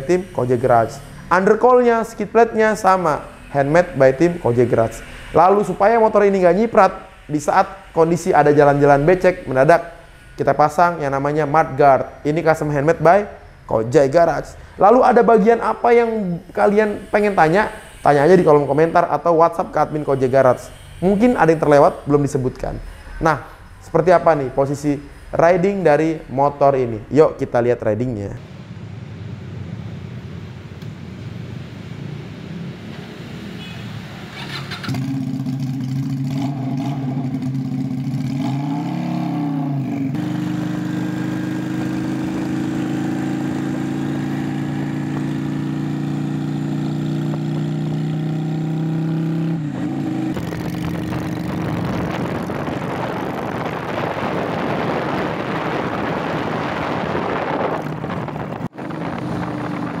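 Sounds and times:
even rushing noise: 0.0s - 34.6s, 49.6s - 60.0s
motorcycle engine running: 34.3s - 60.0s.

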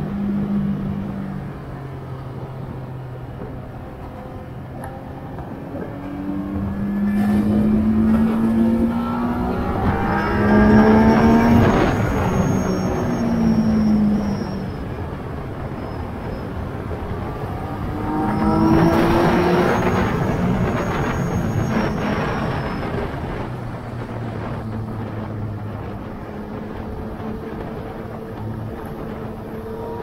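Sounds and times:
wind and road rush: 0.0s - 30.0s
motorcycle engine revving: 4.1s - 14.5s, 17.0s - 23.4s.

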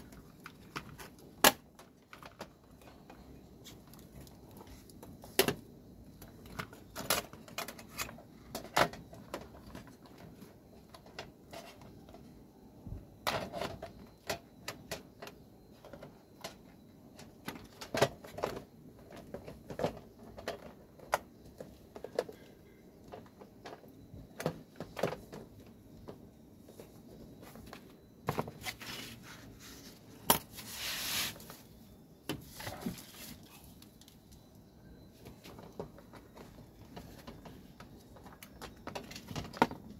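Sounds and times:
plastic scrape: 28.4s - 31.7s.

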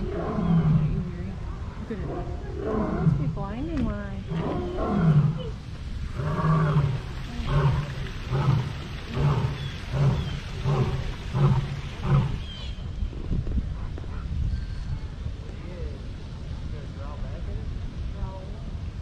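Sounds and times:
big cat roaring: 0.0s - 1.4s, 2.0s - 3.4s, 4.3s - 12.5s.

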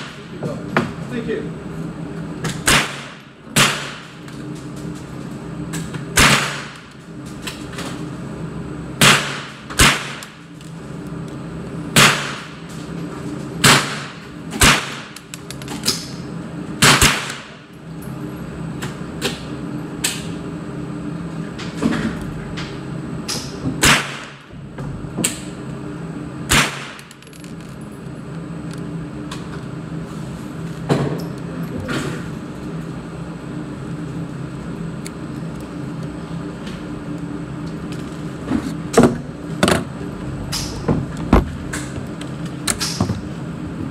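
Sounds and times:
gunshots ringing indoors: 2.6s - 4.1s, 6.2s - 6.8s, 9.0s - 10.4s, 13.6s - 15.2s, 16.8s - 17.6s, 23.8s - 24.5s, 26.5s - 27.1s.

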